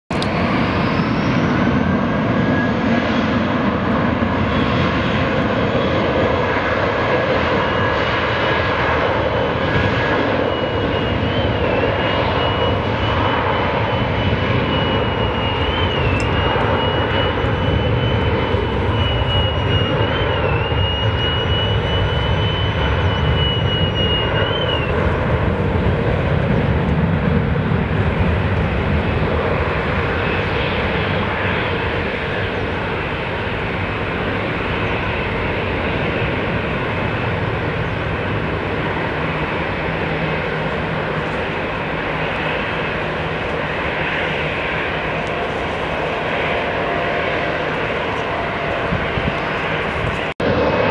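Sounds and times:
high jet engine whine: 0:00.1 - 0:50.9
jet engines roaring: 0:00.1 - 0:50.9.

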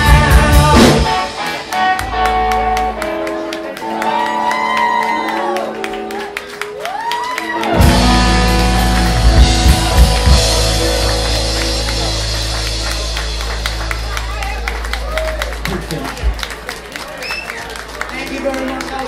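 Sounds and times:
person singing: 0:00.0 - 0:01.9
rock band playing: 0:00.0 - 0:19.0.

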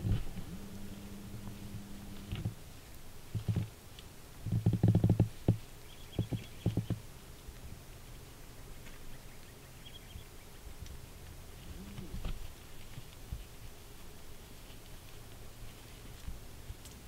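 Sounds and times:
bull elk grunting: 0:00.3 - 0:02.6, 0:11.6 - 0:12.3.

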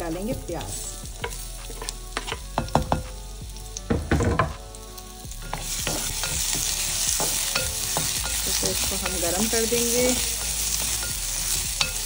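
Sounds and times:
onion sizzling in oil: 0:00.0 - 0:12.0
spatula knocking and scraping: 0:01.2 - 0:03.1.

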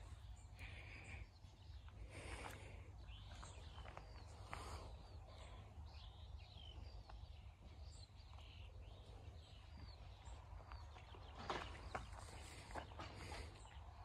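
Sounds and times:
birds chirping and whistling: 0:00.0 - 0:14.0.

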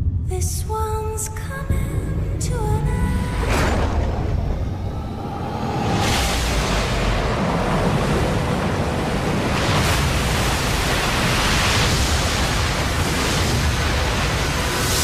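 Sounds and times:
rushing water roar: 0:03.1 - 0:15.0.

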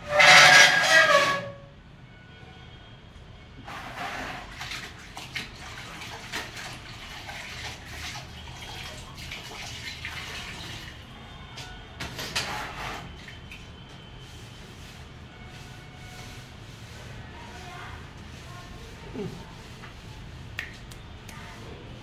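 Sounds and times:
water splashing into bucket: 0:03.8 - 0:11.1.

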